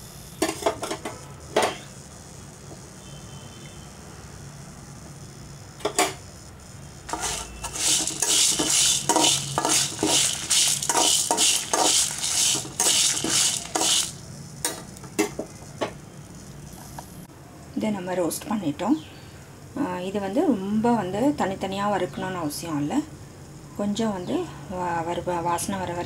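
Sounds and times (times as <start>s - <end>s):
spatula scraping a metal pan: 7.1s - 14.1s.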